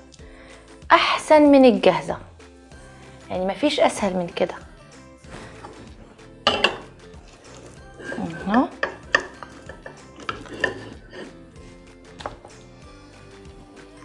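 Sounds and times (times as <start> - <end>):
spoon clinking against metal pot: 6.5 - 11.4.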